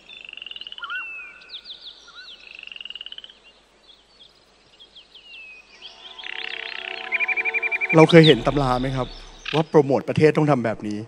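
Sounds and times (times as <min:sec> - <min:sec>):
birds chirping: 0:00.0 - 0:10.1
frogs trilling: 0:05.8 - 0:08.2.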